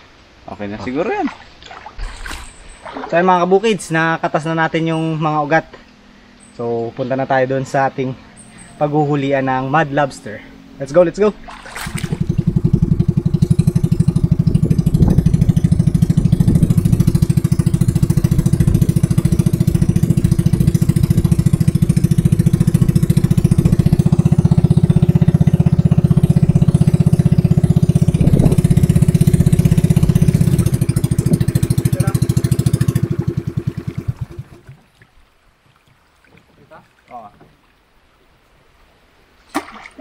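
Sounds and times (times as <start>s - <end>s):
small boat engine running: 4.8s - 35.0s.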